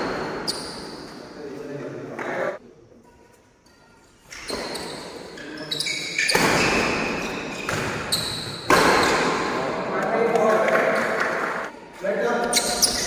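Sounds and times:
footfalls in echoing hall: 0.0 - 13.0
players' voices: 1.1 - 3.0, 9.2 - 13.0
racket hitting shuttlecock: 6.2 - 9.4.

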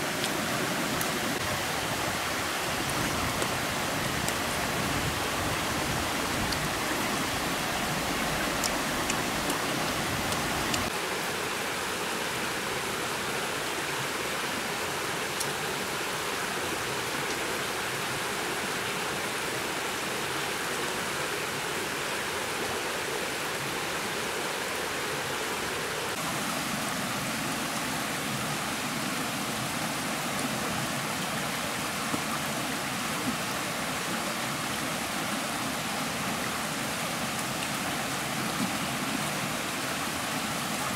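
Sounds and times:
stream running over rocks: 0.0 - 40.9.

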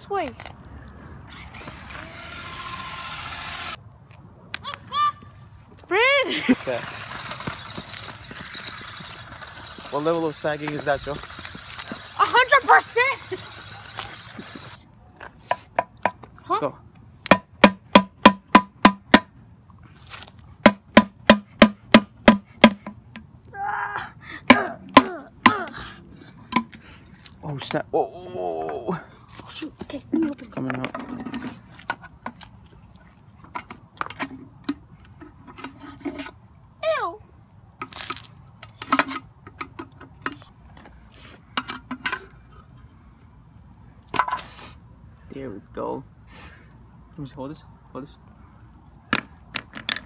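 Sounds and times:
stick banging on metal railing: 17.3 - 19.3.

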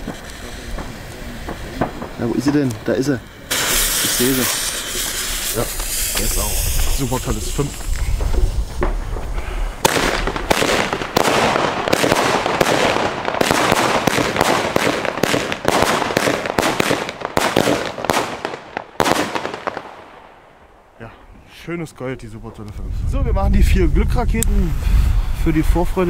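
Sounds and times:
fuse hissing: 0.0 - 9.8
firework shots bursting: 0.0 - 20.8
firework crackle: 0.0 - 21.1.

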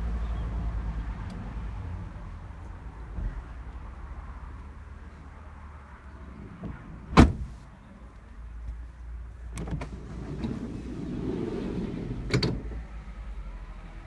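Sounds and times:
van door slamming: 6.6 - 7.6
sliding door unlatching click: 9.6 - 12.7
sliding door rolling on track: 9.8 - 12.8.

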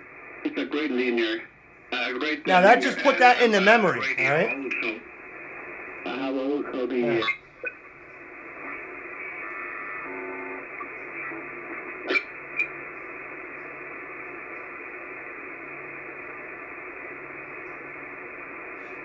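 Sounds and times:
faint radio tones: 0.0 - 7.3, 8.2 - 19.0
radio receiver hiss: 2.4 - 10.1.

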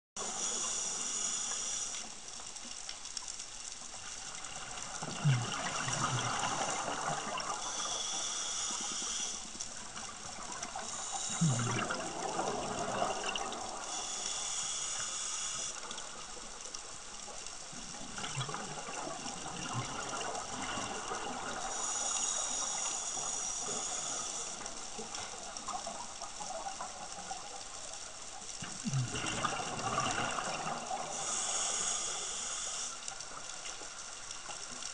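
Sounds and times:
regulator inhale hiss: 0.2 - 2.8, 5.2 - 16.6, 19.9 - 26.0, 28.8 - 34.2.

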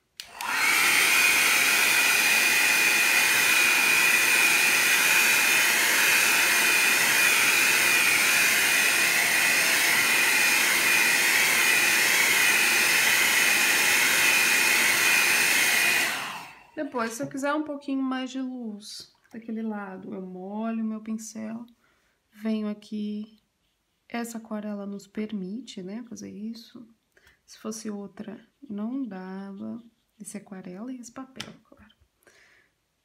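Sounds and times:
hair dryer blowing: 0.1 - 17.3.

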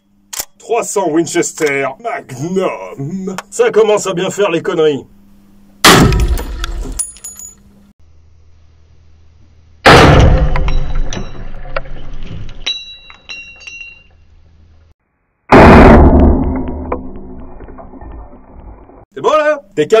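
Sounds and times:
rifle shots echoing: 5.8 - 7.0
light metallic clinks: 6.7 - 7.7, 12.6 - 14.2.

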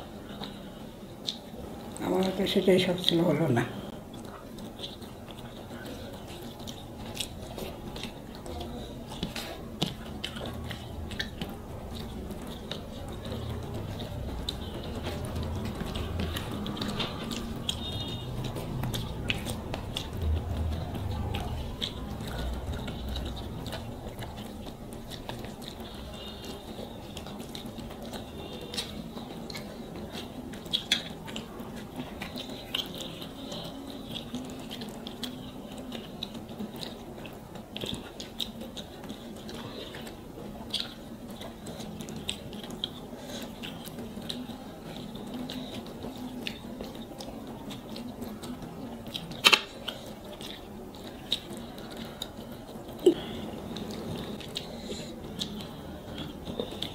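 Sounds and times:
chewing: 0.0 - 56.9
faint low hum: 0.0 - 56.9
fingers mixing rice on plates: 3.7 - 56.9.

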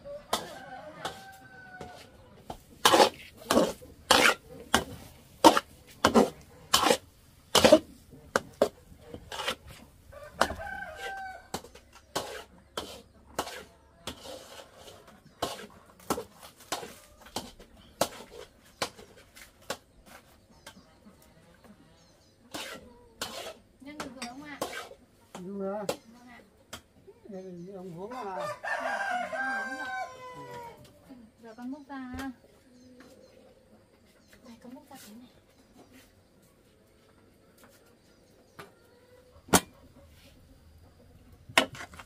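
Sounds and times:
rooster crowing: 0.0 - 2.2, 10.1 - 11.6, 28.1 - 30.9.

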